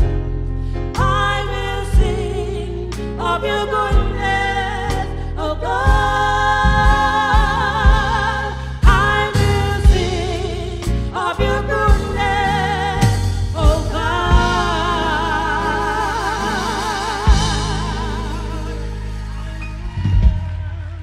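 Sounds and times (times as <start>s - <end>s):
band accompaniment: 0.0s - 21.0s
women singing gospel duet: 0.9s - 21.0s
drum hits: 5.9s - 11.0s, 11.9s - 21.0s.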